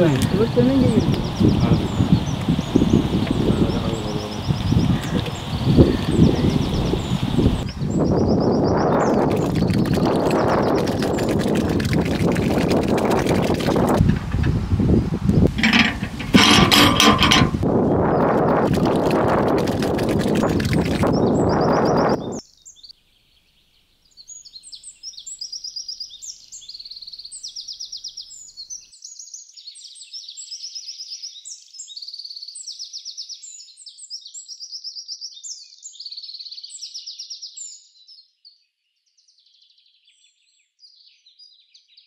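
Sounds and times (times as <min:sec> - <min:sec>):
birds chirping: 0:00.0 - 0:22.4.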